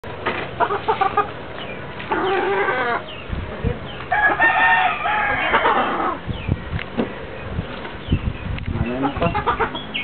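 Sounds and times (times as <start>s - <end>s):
rooster crowing: 4.1s - 6.2s.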